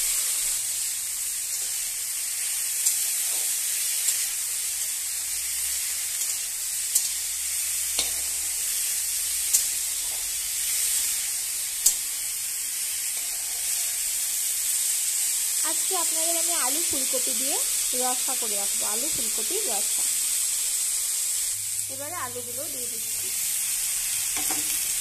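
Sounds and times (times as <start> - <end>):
vegetables sizzling in hot oil: 0.0 - 25.0
metal spatula clicking on pan: 6.2 - 7.2.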